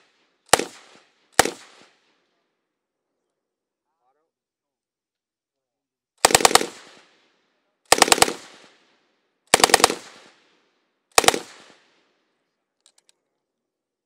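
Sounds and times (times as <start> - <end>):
machine gun bursts with echo: 0.0 - 1.9, 6.2 - 7.2, 7.9 - 8.8, 9.5 - 10.4, 11.1 - 11.9.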